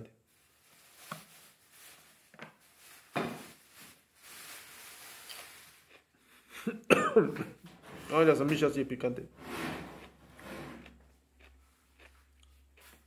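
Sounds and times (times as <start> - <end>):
soft hiss: 0.1 - 5.9
faint mouth and handling noises: 10.8 - 13.0.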